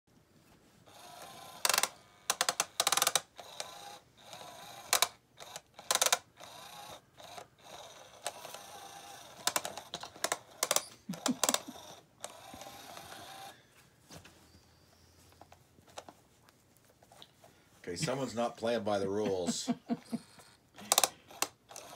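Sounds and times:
toy motor whirring: 0.8s - 13.6s, 19.2s - 21.9s.

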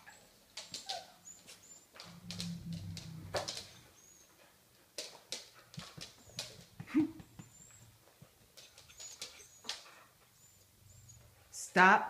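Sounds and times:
dog yelp: 0.0s - 1.8s
dog whining: 0.0s - 2.3s, 3.4s - 4.4s, 7.4s - 8.0s, 8.7s - 11.4s.

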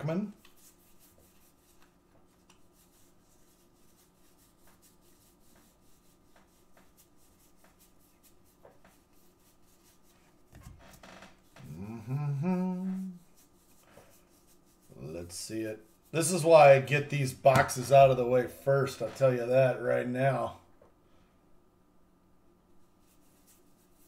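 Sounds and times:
man's voice: 15.0s - 20.6s.

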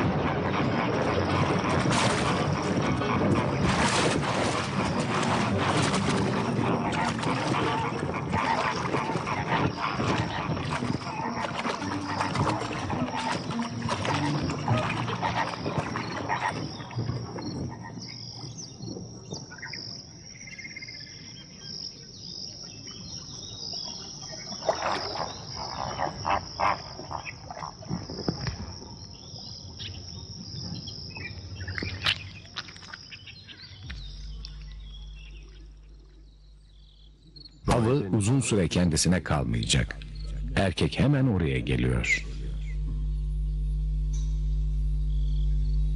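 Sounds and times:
flamingo calls: 0.0s - 18.2s
crickets chirring: 0.0s - 45.9s
wings flapping: 0.8s - 16.7s.

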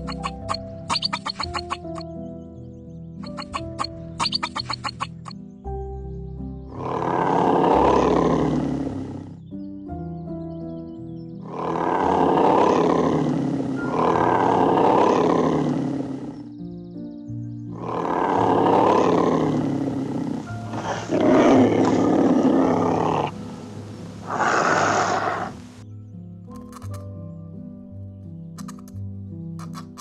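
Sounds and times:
soft piano music: 0.0s - 30.0s
large wild animal roaring: 6.7s - 9.5s, 11.4s - 16.5s, 17.7s - 25.6s.

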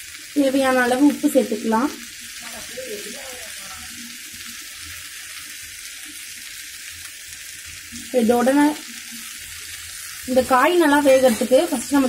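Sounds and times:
vegetables sizzling in oil: 0.0s - 12.0s
burst of voice: 2.4s - 4.0s.

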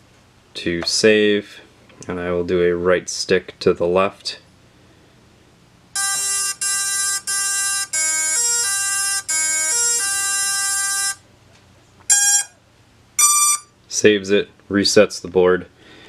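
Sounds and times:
electronic beeps playing a tune: 6.0s - 11.2s, 12.1s - 12.6s, 13.2s - 13.7s.

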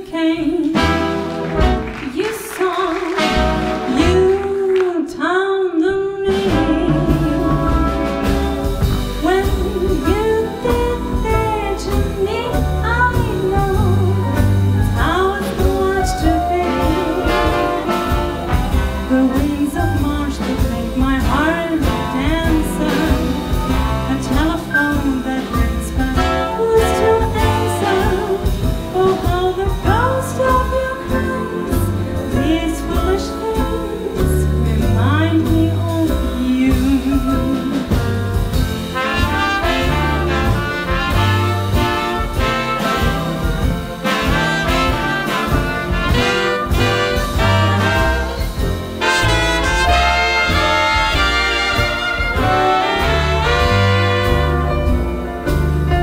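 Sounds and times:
woman singing: 0.0s - 38.2s
slow jazz ballad by swing band: 0.3s - 4.9s, 5.8s - 56.0s.

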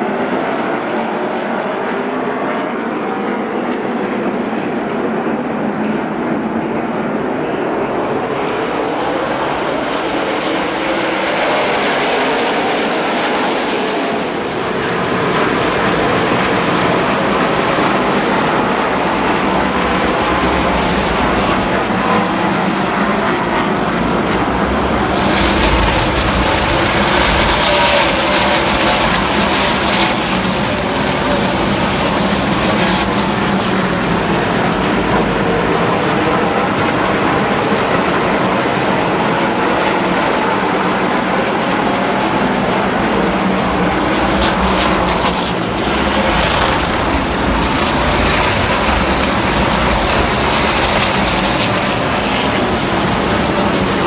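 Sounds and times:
race truck engines droning: 0.0s - 54.0s.

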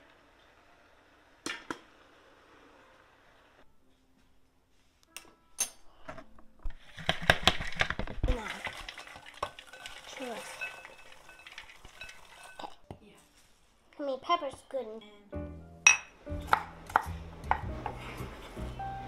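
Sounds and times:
popcorn tumbling against glass: 6.8s - 12.8s.

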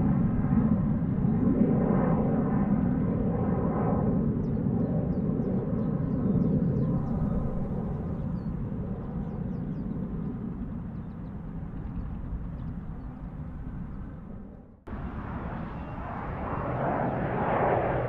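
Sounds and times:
jet engine rumble: 0.0s - 18.0s
faint bird chirps: 15.4s - 16.8s.

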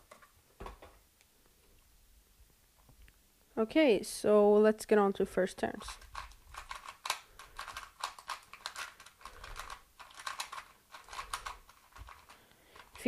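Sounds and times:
plastic puzzle cube clicking: 5.8s - 13.0s.

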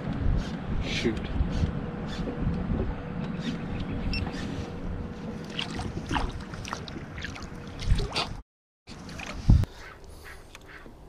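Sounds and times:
wind: 0.0s - 11.0s
waves lapping against boat hull: 2.1s - 10.0s.

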